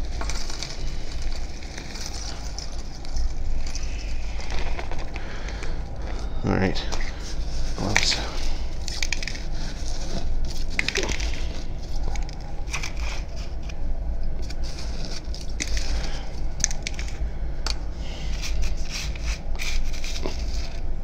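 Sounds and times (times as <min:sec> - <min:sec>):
flakes crunching and rattling: 0:00.0 - 0:13.8
steady low hum: 0:00.0 - 0:21.0.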